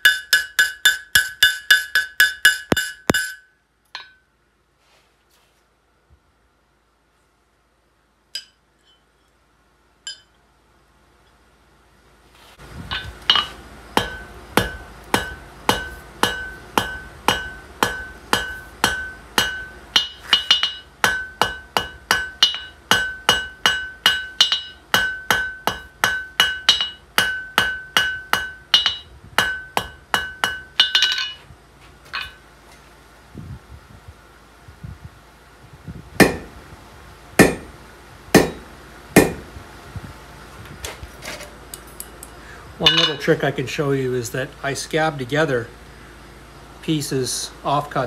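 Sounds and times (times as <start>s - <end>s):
hammer striking iron on anvil: 0.0s - 4.3s, 8.4s - 9.0s, 10.1s - 10.3s, 12.9s - 31.4s, 36.2s - 36.6s, 37.4s - 37.8s, 38.4s - 39.5s, 42.8s - 43.4s.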